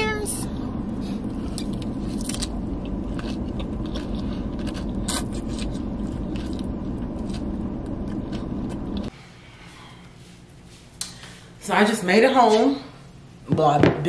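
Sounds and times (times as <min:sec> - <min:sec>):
low rumble inside car: 0:00.0 - 0:09.1
crunching and chewing lettuce: 0:01.0 - 0:09.1.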